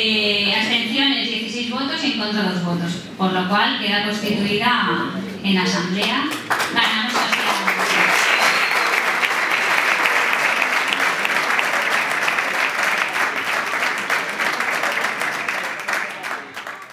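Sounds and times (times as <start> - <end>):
audience applauding: 6.4 - 16.9.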